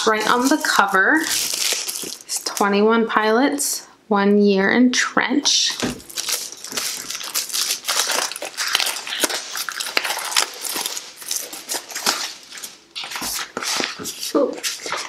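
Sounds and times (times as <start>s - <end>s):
plastic shrink-wrap tearing and crinkling: 0.0s - 2.7s, 5.8s - 15.0s.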